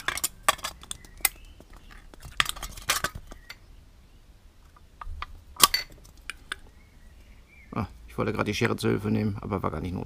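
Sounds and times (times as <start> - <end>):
aluminium can crackling and tearing: 0.0 - 3.5.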